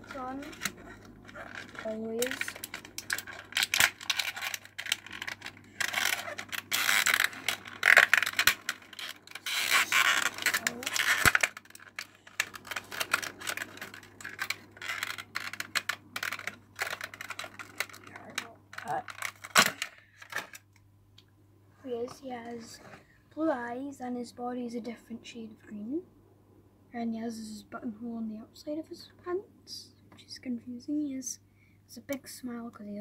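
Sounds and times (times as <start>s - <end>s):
toy box handling clicks and crinkling: 0.0s - 20.8s.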